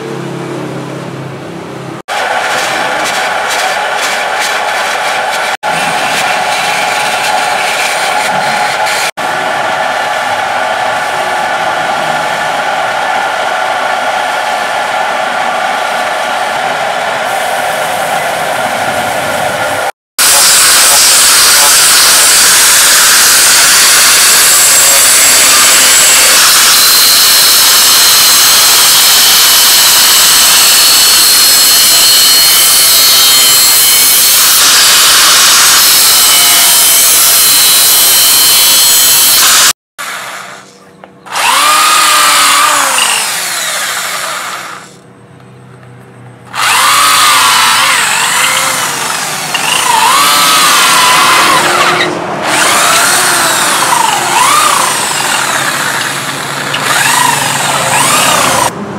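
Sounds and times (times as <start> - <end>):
angle grinder sanding wood: 2.1 - 15.0, 20.2 - 40.7, 41.3 - 45.0, 46.5 - 58.7
electric drill motor spinning: 2.1 - 17.7, 20.2 - 45.0, 46.5 - 58.7.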